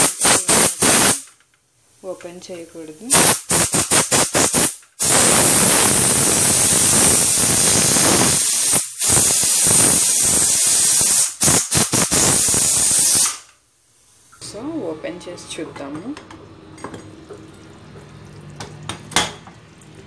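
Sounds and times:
pressure cooker steam hissing: 0:00.0 - 0:01.3, 0:02.8 - 0:13.5.

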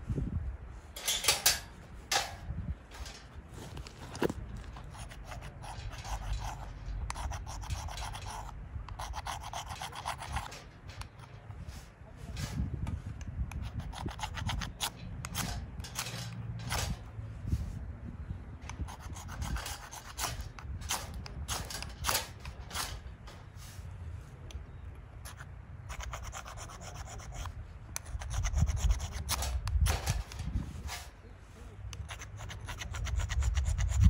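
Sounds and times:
short scraping strokes: 0:18.7 - 0:24.4, 0:25.2 - 0:34.0.

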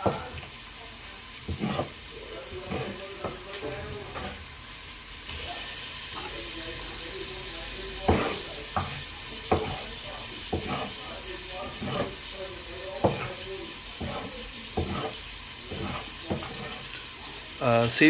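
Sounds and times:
cleaver chopping on wooden block: 0:08.1 - 0:09.8, 0:13.0 - 0:13.3.

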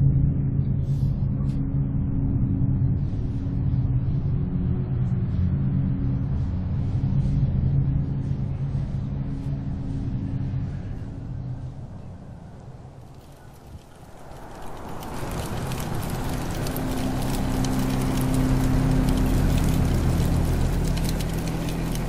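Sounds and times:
held low tones: 0:00.0 - 0:22.0
low rumbling drone: 0:00.0 - 0:22.0.

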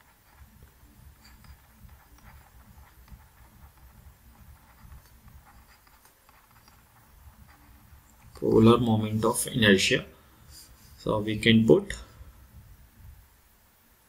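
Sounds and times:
stylus tapping on tablet screen: 0:00.0 - 0:08.5.

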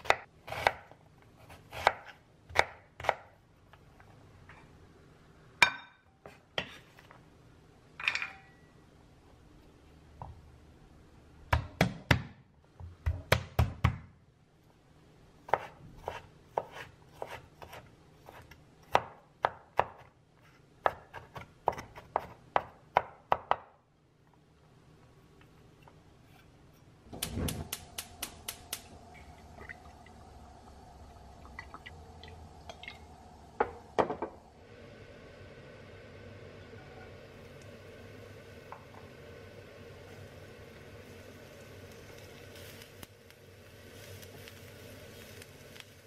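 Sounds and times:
knife chopping on wooden board: 0:00.0 - 0:03.3, 0:15.5 - 0:20.1
gas burner hum: 0:27.0 - 0:46.0
gas burner igniter clicks: 0:27.2 - 0:28.9.

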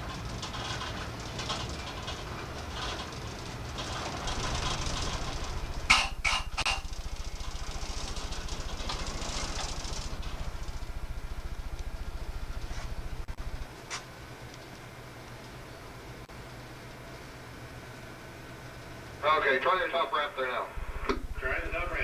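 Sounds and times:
loud clanks: 0:00.0 - 0:13.7
ferry engines pulsing: 0:00.0 - 0:22.0.

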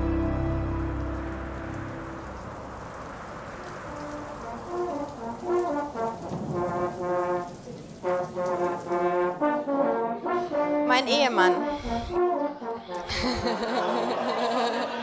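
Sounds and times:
steady rain: 0:00.0 - 0:10.9
brass instrument slow melody: 0:00.0 - 0:14.1.

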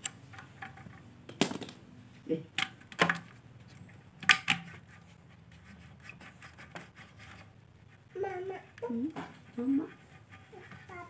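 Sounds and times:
plastic parts clicking and knocking: 0:00.0 - 0:01.8, 0:02.5 - 0:05.0.

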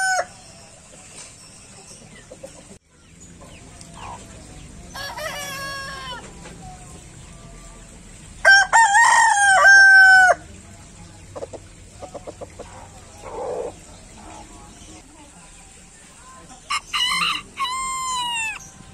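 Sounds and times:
rooster crowing: 0:00.0 - 0:00.5, 0:04.9 - 0:06.4, 0:08.4 - 0:10.4, 0:16.7 - 0:18.8
chicken clucking: 0:00.0 - 0:18.9.

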